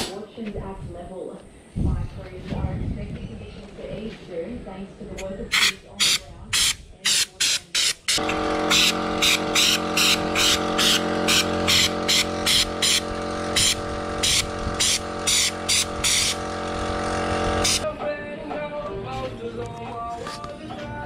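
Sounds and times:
spray gun hissing bursts: 6.6 - 17.8
air compressor humming: 7.8 - 17.8.

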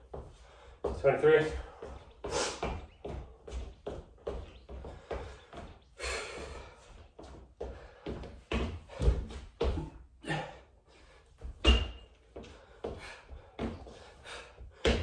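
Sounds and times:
heavy breathing: 0.0 - 0.9, 1.5 - 2.9, 4.7 - 11.4, 12.4 - 15.0.

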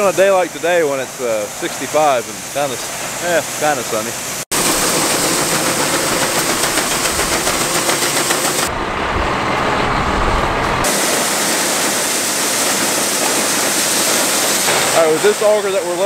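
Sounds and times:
corn pouring from grain auger: 0.0 - 8.7, 10.8 - 16.0
deep rumble: 8.7 - 10.9.

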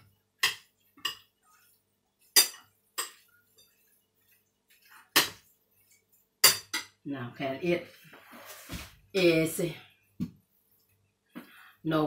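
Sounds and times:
utensils clinking on ceramic bowl: 6.4 - 6.9.

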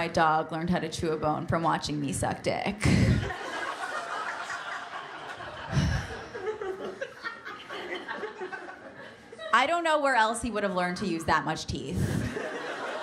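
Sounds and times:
audience laughing: 2.8 - 9.6, 12.0 - 13.0.

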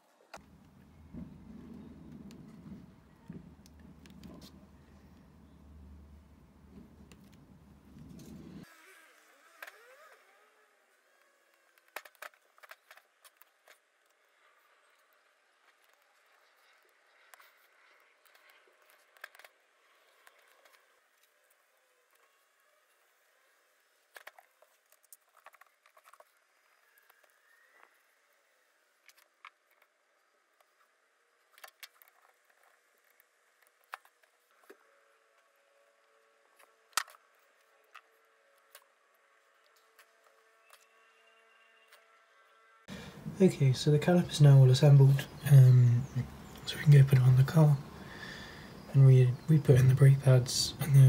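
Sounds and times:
low hum: 0.4 - 8.7.

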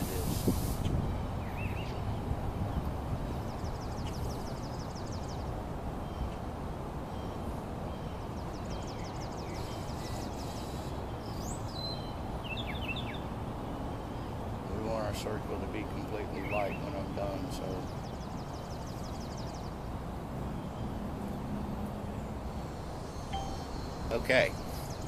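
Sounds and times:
bird trill of ticking notes: 23.2 - 25.0
short bird chirps: 23.2 - 25.0.

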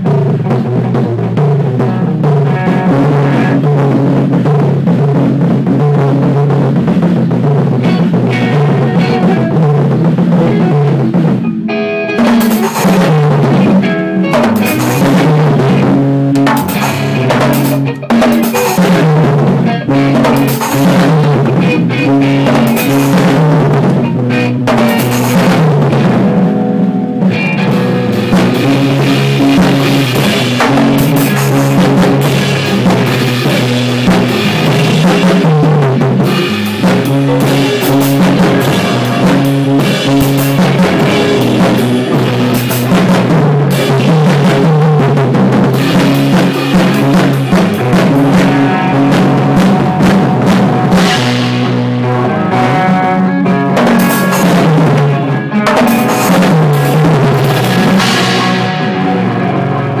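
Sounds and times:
drum kit and cymbals: 0.0 - 60.0
electric guitars: 0.0 - 60.0
rock band playing live: 0.0 - 60.0.

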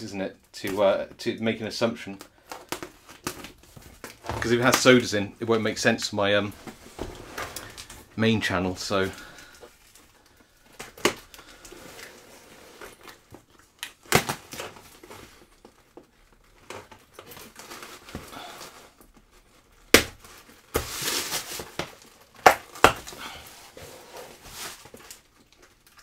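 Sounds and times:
cardboard flaps rustling: 2.4 - 25.4
packing tape ripping: 13.8 - 15.4, 19.8 - 23.4.

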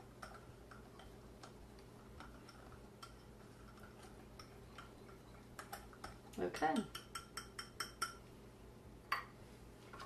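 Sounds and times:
wire whisk stirring batter: 0.0 - 8.2
whisk clicking on glass bowl: 2.2 - 8.2.

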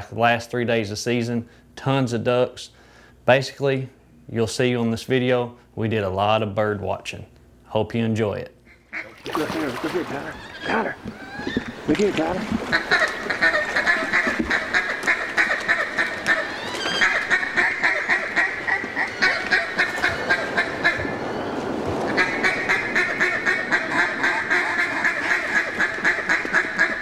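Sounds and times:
duck call quacks: 8.7 - 9.5, 12.6 - 21.2, 22.1 - 27.0.

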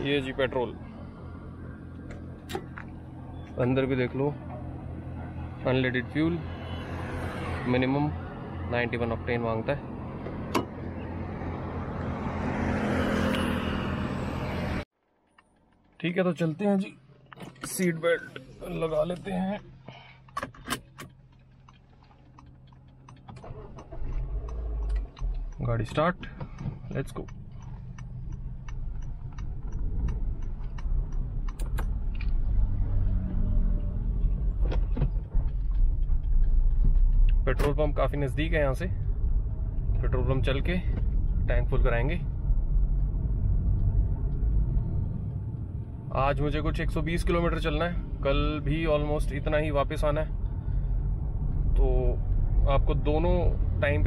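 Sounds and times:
passing vehicles rushing: 0.0 - 14.9, 22.2 - 54.0
car engine rumbling: 0.0 - 54.0
indicator relay ticking: 23.8 - 31.8.

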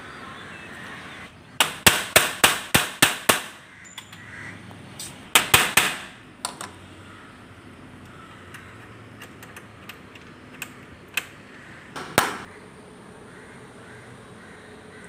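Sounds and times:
hammer striking metal: 5.3 - 6.2.

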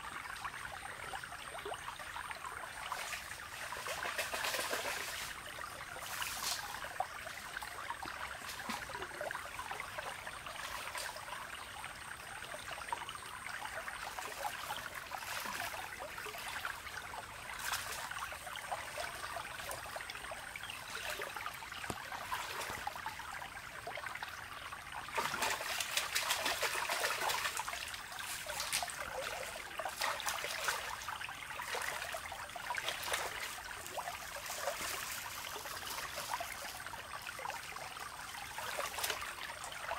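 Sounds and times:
stream water trickling: 0.0 - 39.9
splashing in water: 3.0 - 5.4, 25.1 - 33.6.

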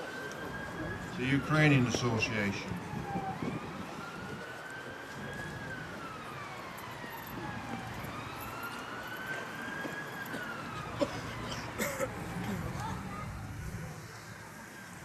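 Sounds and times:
emergency siren wailing: 0.0 - 15.0.

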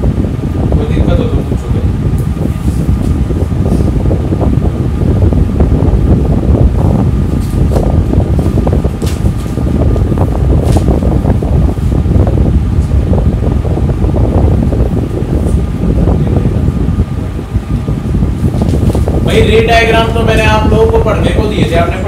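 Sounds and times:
air rumbling on microphone: 0.0 - 22.0.

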